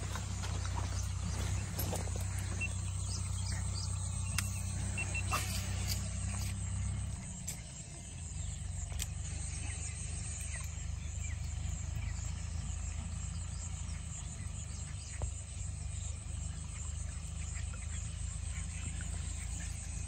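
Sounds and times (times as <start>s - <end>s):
steady low rumble: 0.0s - 20.0s
faint high animal chirps: 2.5s - 6.6s.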